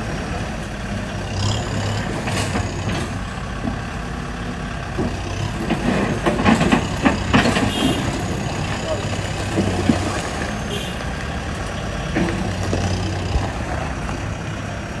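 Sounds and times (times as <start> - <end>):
diesel engine running: 0.0 - 15.0
metal clanks and rattles: 1.8 - 3.8, 5.0 - 10.4.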